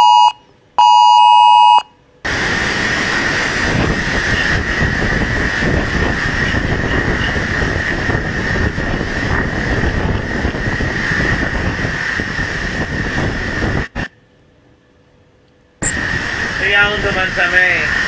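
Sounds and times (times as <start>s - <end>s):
typhoon wind and driven rain: 2.2s - 14.2s, 15.8s - 18.0s
high whistling wind tone: 2.3s - 14.2s, 15.8s - 18.0s.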